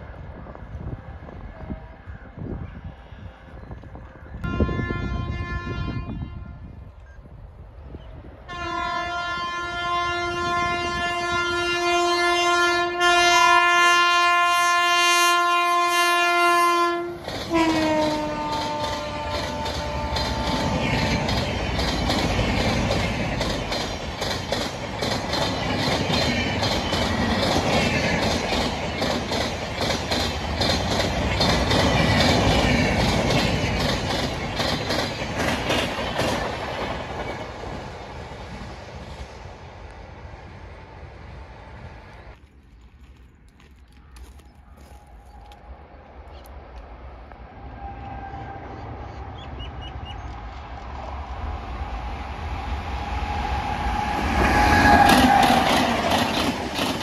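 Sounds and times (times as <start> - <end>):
locomotive horn blast: 0.9 - 6.8, 8.5 - 21.3, 47.7 - 48.9
train wheels clacking on rails: 17.0 - 38.2, 54.1 - 57.0.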